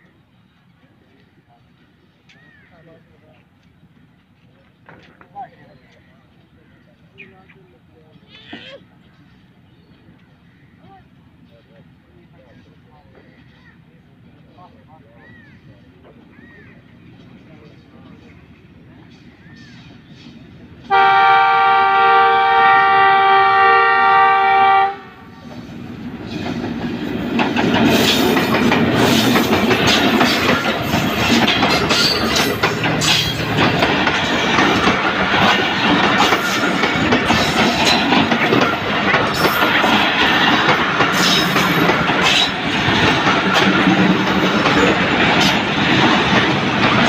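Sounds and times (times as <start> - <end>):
train coaches rattling past: 0.0 - 47.0
locomotive horn blast: 20.9 - 25.4
wheels clacking over rail joints: 25.4 - 47.0.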